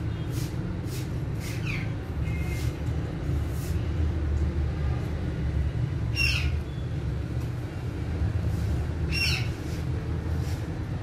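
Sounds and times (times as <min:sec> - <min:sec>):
parakeet squawking: 0:01.4 - 0:02.6, 0:06.1 - 0:06.6, 0:09.1 - 0:09.6.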